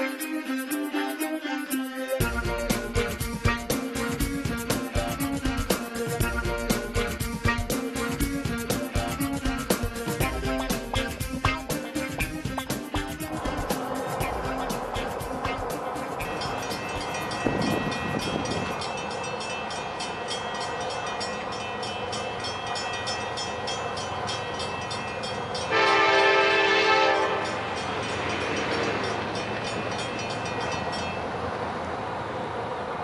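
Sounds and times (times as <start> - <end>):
train rumbling: 0.0 - 33.0
train air horn blast: 25.7 - 27.6.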